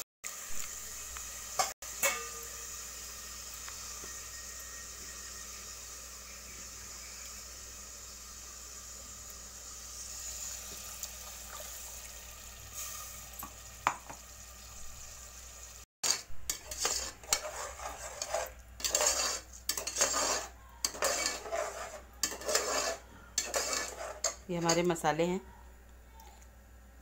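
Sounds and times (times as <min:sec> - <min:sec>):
paste sizzling in oil: 0:00.3 - 0:25.0
metal spoon scraping a pot: 0:16.0 - 0:25.0.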